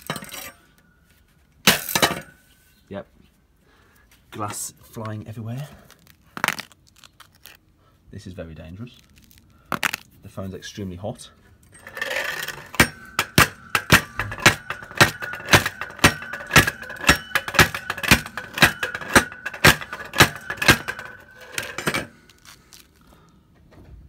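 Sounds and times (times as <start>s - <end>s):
metal rake striking phone on concrete: 0.0s - 0.7s, 11.7s - 22.6s
steady ringing tone: 11.7s - 22.1s.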